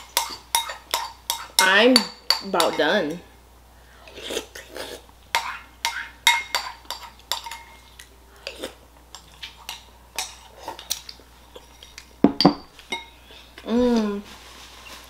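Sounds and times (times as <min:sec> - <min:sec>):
spoon clinking against ceramic bowl: 0:00.2 - 0:02.8, 0:05.4 - 0:07.8.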